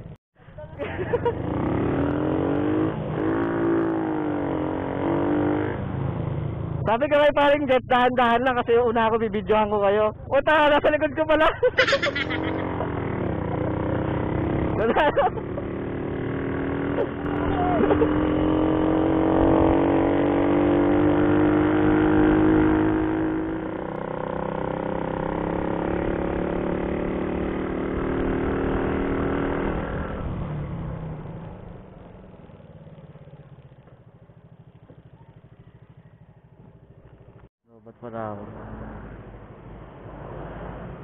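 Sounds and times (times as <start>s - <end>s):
motorcycle engine accelerating: 0.0s - 37.5s.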